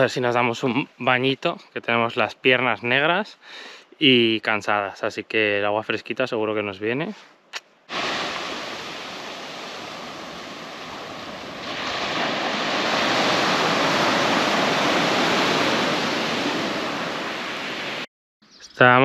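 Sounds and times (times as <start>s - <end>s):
surf breaking on a beach: 7.9s - 18.1s.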